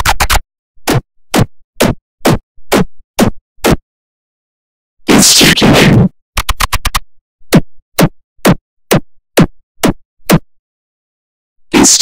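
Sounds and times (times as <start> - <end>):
whacking hits falling in pitch: 0.0 - 3.8
harsh distorted burst: 5.1 - 6.1.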